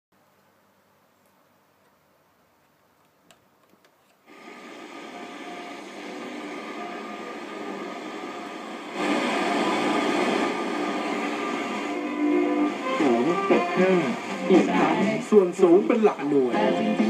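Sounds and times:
radio static hiss: 4.2 - 17.0.

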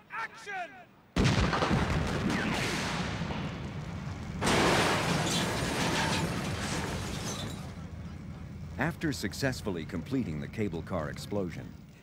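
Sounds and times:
explosion blast: 1.2 - 7.4
noisy rush of fireball: 1.3 - 7.8.

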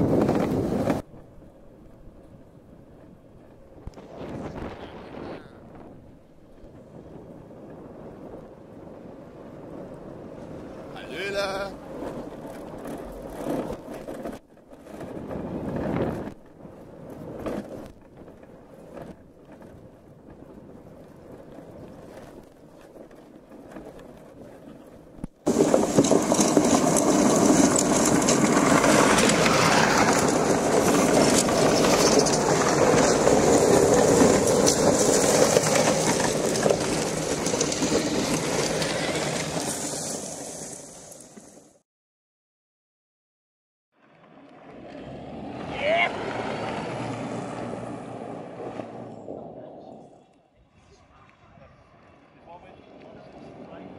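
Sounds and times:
crawler tracks rumbling over gravel: 0.0 - 41.8.

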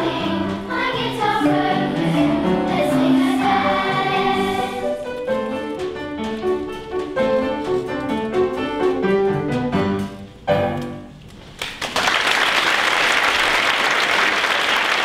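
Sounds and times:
piano playing: 0.0 - 11.3
audience applause: 11.6 - 15.0.

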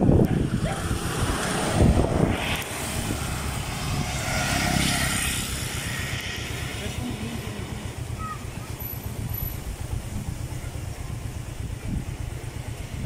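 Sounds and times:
auto-rickshaw driving past: 0.0 - 10.1
road traffic rumble: 0.0 - 13.0.

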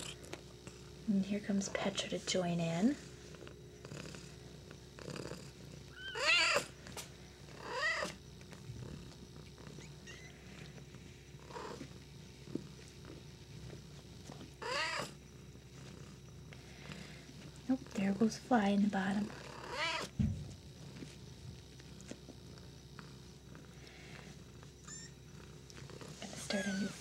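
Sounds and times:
cat purring: 0.0 - 27.0
cat mewing: 5.9 - 6.7, 7.6 - 8.2, 14.6 - 15.1, 19.5 - 20.1.

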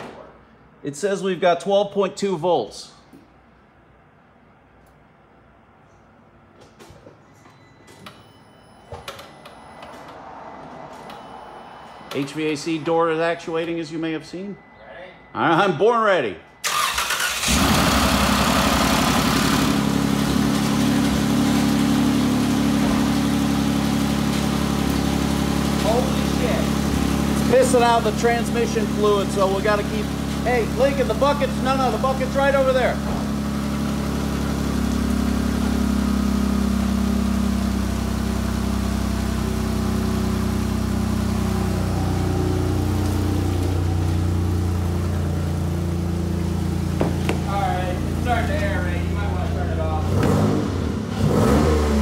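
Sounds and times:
van engine idling: 16.6 - 50.0.

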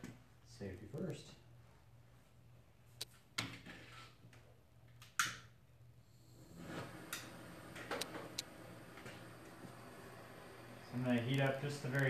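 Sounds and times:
blowtorch gas hissing: 6.0 - 12.0
blowtorch igniter click: 6.6 - 9.8.

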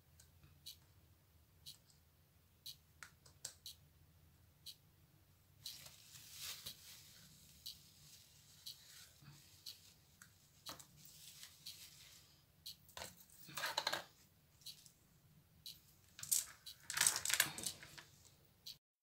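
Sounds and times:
rustle: 5.9 - 7.4.

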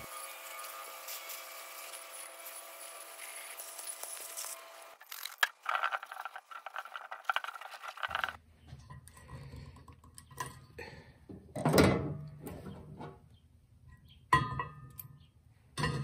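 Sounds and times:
hose nozzle spraying water: 0.0 - 8.4.

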